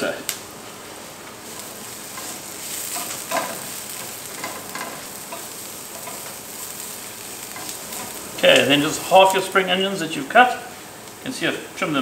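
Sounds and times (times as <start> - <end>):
onions sizzling in oil: 0.0 - 12.0
spatula scraping a frying pan: 1.5 - 8.4.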